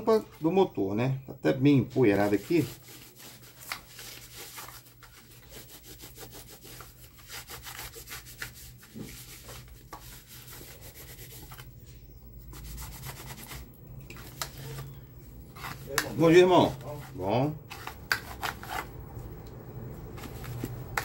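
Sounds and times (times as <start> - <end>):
rubbing strokes wiping dust: 1.8 - 11.7.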